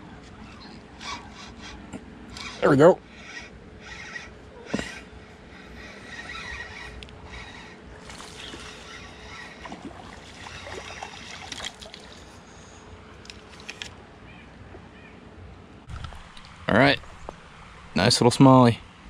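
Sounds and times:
fishing reel gears whirring: 1.0s - 12.4s
sharp reel clicks: 2.3s - 2.6s.

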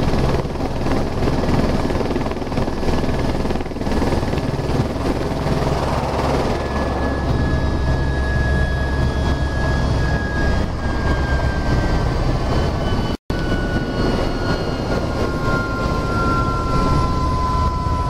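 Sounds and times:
helicopter engine winding down: 0.0s - 18.0s.

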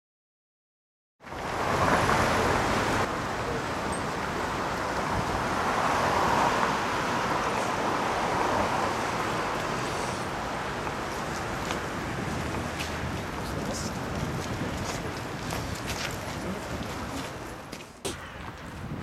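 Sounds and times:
cars driving past: 1.2s - 17.8s.

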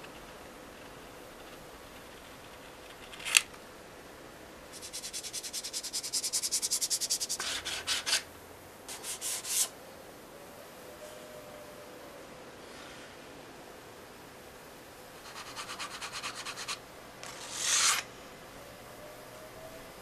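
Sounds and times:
hand sanding plastic edge: 15.3s - 18.0s.

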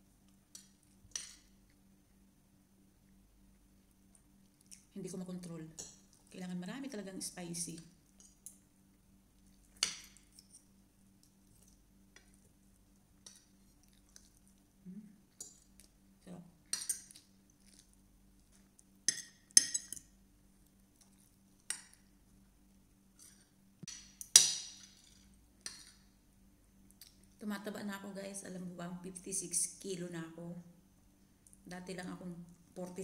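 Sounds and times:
faint steady hum: 0.0s - 33.0s
cutlery clinking on a plate: 19.1s - 20.1s.

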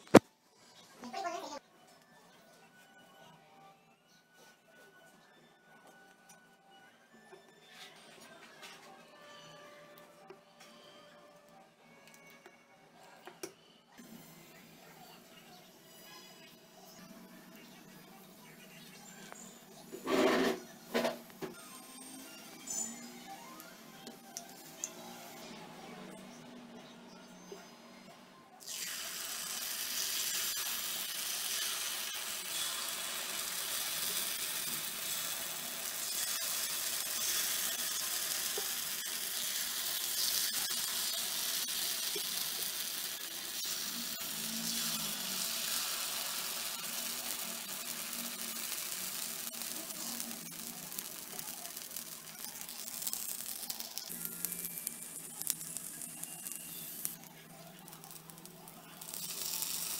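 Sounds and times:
batter sizzling in hot oil: 28.6s - 59.9s
oil crackles: 28.6s - 59.9s.

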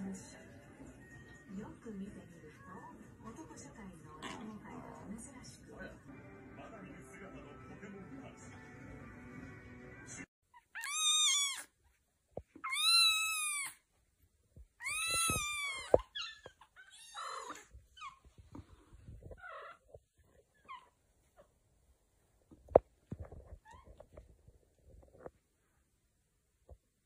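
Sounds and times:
background music: 0.0s - 3.6s, 5.6s - 10.3s
kitten meowing: 10.6s - 11.7s, 12.6s - 13.8s, 14.8s - 17.6s.

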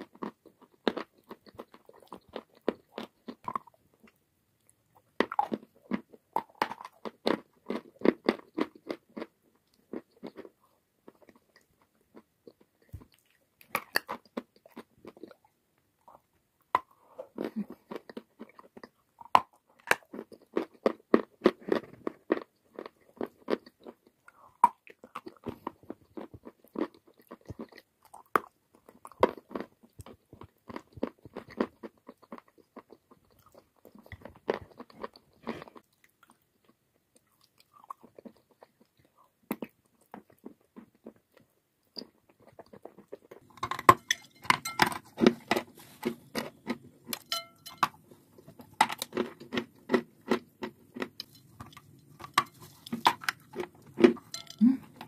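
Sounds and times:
chalk crunching when chewed: 0.0s - 15.5s, 16.1s - 43.5s.

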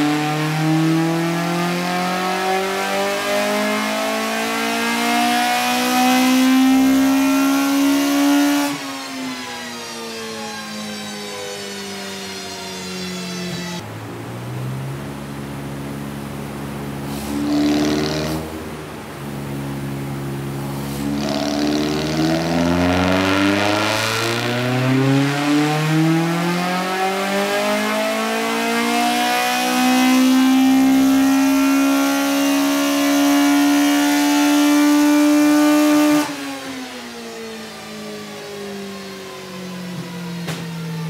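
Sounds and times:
four-cylinder engine revving: 0.0s - 8.8s, 13.5s - 36.4s.

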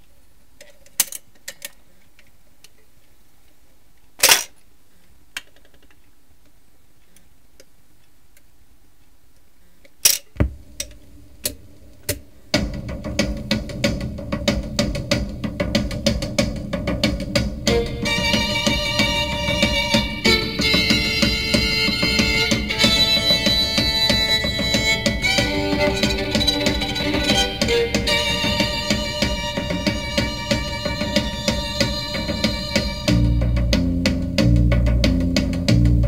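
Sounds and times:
record groove rumble and crackle: 10.4s - 36.0s
music from record player speaker: 12.5s - 36.0s.

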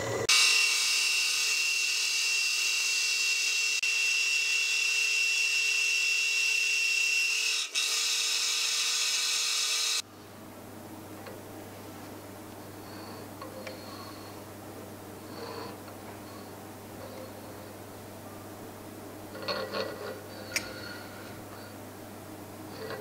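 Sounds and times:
milling machine cutting metal: 0.0s - 10.0s.

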